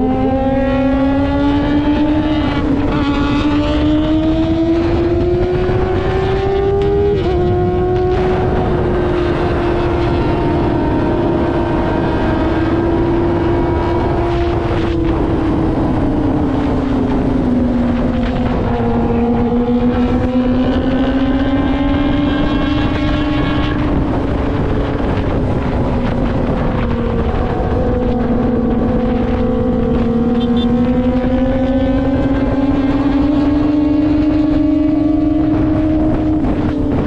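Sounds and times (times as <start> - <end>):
motorcycle engine at high revs: 0.0 - 37.0.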